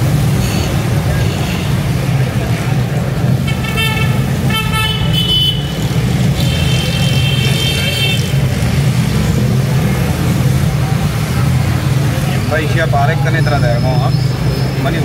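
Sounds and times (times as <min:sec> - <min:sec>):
engines rumbling: 0:00.0 - 0:15.0
vehicle horns honking: 0:03.4 - 0:08.5.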